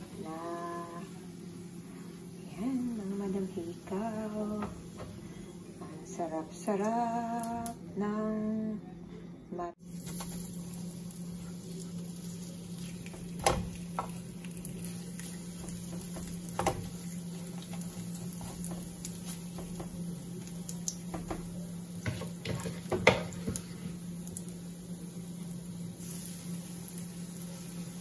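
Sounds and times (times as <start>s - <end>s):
faint sizzle: 0.0s - 28.0s
steady low hum: 0.0s - 28.0s
utensils knocking in frying pan: 15.5s - 17.0s, 17.6s - 20.0s, 21.1s - 23.6s.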